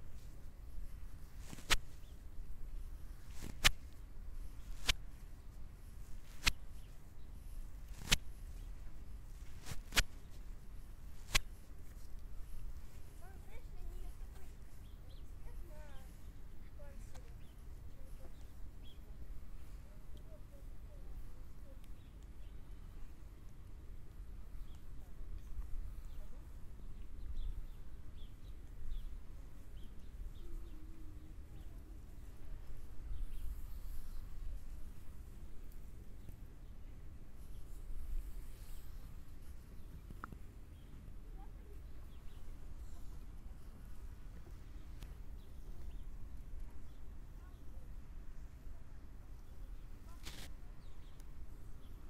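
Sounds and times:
small birds chirping: 0.0s - 52.0s
hands smacking skin: 1.3s - 2.2s, 3.2s - 4.0s, 4.6s - 5.1s, 6.2s - 7.0s, 7.9s - 8.7s, 9.4s - 10.4s, 11.1s - 12.3s.

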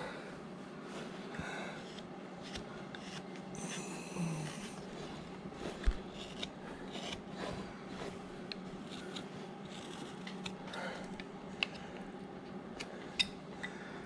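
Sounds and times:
knife snicking and scraping wood: 5.6s - 11.8s.

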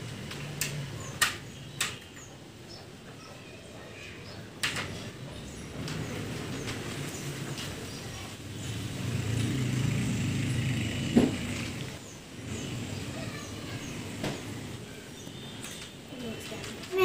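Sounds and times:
vehicle passing by: 5.7s - 15.1s.

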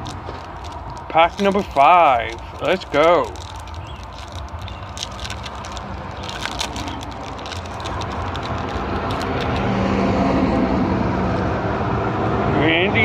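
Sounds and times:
foil wrapper crinkling and tearing: 0.0s - 9.7s
car passing: 3.5s - 13.0s.

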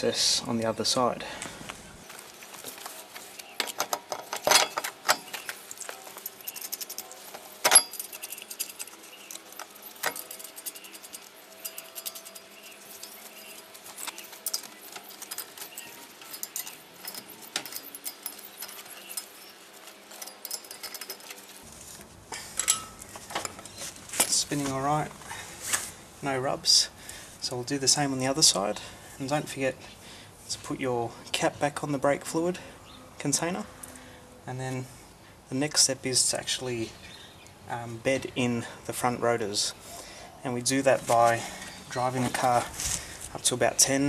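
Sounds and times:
metallic clicks and clinks: 3.4s - 21.6s, 22.4s - 24.4s.

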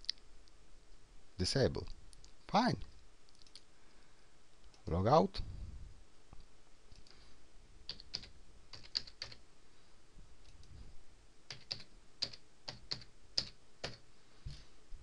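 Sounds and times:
keyboard typing: 7.9s - 9.4s, 11.5s - 14.0s.

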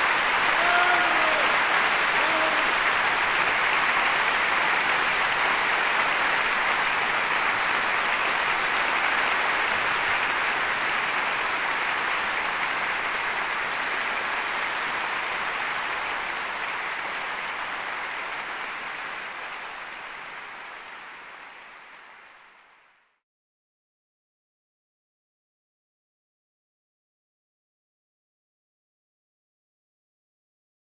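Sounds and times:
audience applauding: 0.0s - 23.2s.

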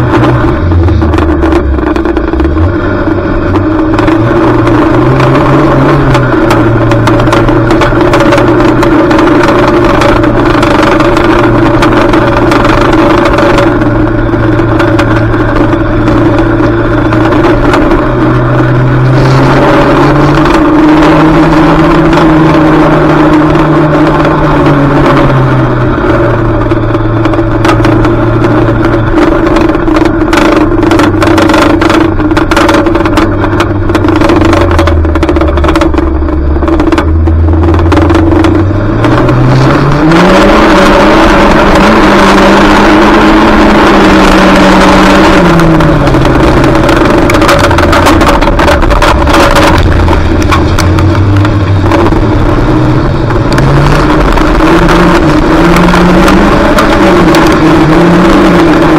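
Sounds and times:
car engine revving: 0.0s - 58.9s
knocks and rattles: 25.8s - 39.8s, 44.4s - 58.9s.

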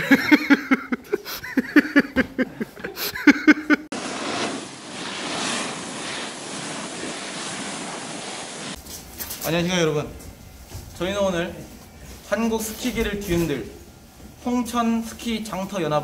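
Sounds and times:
laughter: 0.0s - 3.9s
snowboarder sliding on snow: 3.9s - 8.8s.

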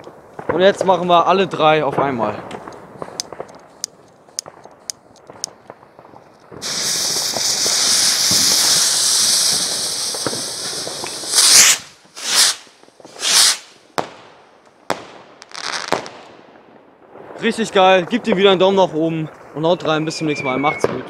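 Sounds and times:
firework bursts: 2.5s - 16.4s
rocket motors hissing: 6.6s - 13.7s.

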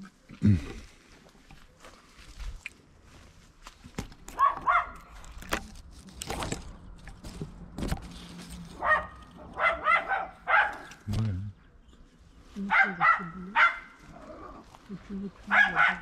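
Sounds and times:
twigs cracking and rustling: 0.8s - 9.6s, 10.6s - 11.4s.

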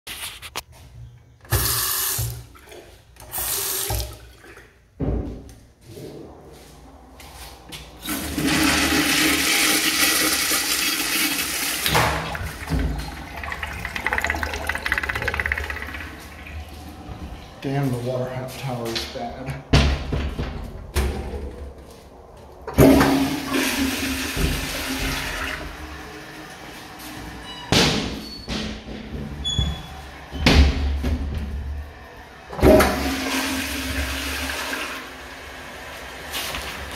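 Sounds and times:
urinal flushing: 1.4s - 5.0s, 5.8s - 18.5s, 22.7s - 27.5s, 29.0s - 36.9s.

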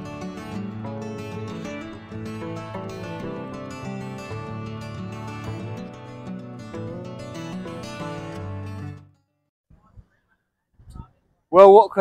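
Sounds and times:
plucked string music: 0.0s - 9.1s.

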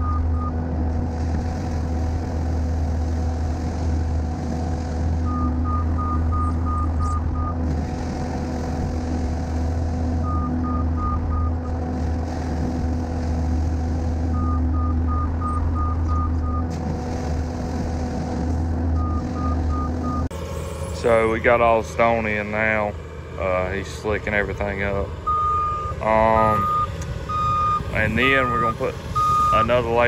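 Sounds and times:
backup alarm beeping: 0.0s - 0.6s, 5.2s - 7.6s, 10.2s - 11.7s, 14.3s - 16.7s, 19.0s - 20.3s, 25.2s - 29.8s
skid steer engine running: 0.0s - 30.0s.

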